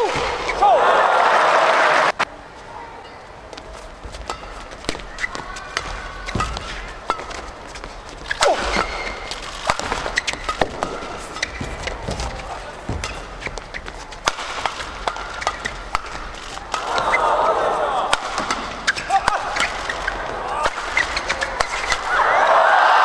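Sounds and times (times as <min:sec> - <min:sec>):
shoes squeaking on court: 0:02.5 - 0:17.4, 0:18.3 - 0:22.1
rackets striking shuttlecock: 0:03.6 - 0:17.4, 0:18.0 - 0:22.2.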